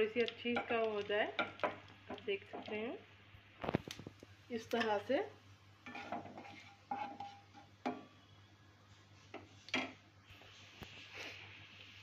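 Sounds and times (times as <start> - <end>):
spatula stirring in pan: 0.0 - 3.0, 4.7 - 12.0
seeds frying in hot oil: 0.0 - 12.0.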